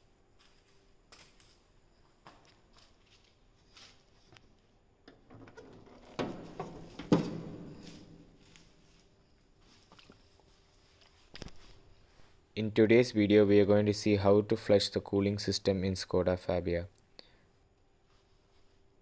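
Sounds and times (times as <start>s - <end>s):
car bonnet clunk: 5.3s - 7.8s.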